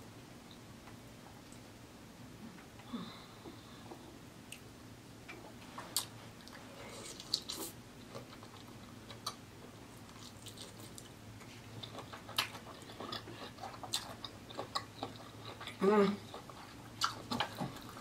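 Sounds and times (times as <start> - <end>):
person chewing: 5.3 - 18.0.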